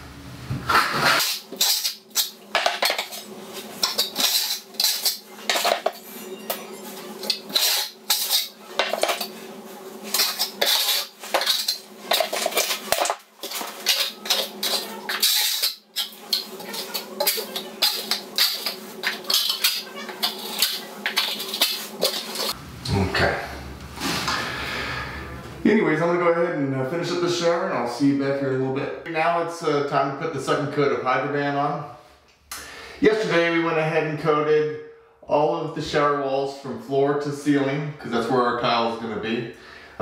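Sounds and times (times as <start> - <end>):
trowel scraping and spreading: 0.7 - 22.6.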